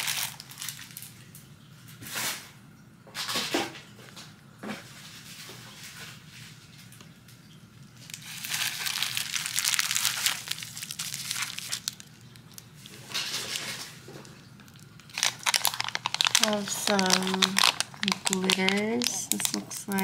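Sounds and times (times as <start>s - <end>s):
plastic wrapping crinkling: 0.0s - 1.1s, 8.0s - 20.0s.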